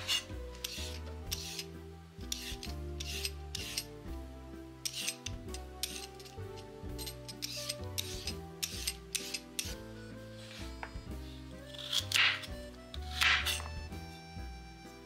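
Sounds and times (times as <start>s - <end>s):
peeler scraping carrot: 0.0s - 4.0s, 4.8s - 9.8s, 10.4s - 13.9s
soft background music: 0.0s - 15.0s.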